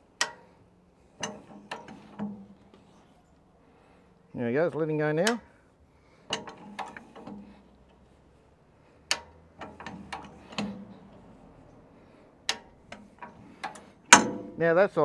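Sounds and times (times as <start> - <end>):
metal jack handle clicks and clunks: 0.0 - 0.6, 1.2 - 3.1, 4.7 - 5.5, 6.2 - 8.0, 9.0 - 11.4, 12.4 - 14.6.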